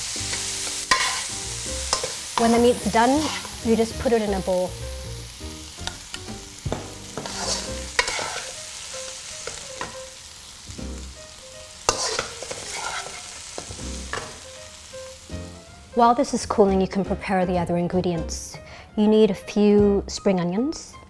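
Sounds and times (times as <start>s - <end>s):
light sizzle from hot pan: 0.0s - 16.0s
metal spatula scraping a wok: 0.3s - 4.2s, 7.0s - 8.6s, 11.9s - 14.4s.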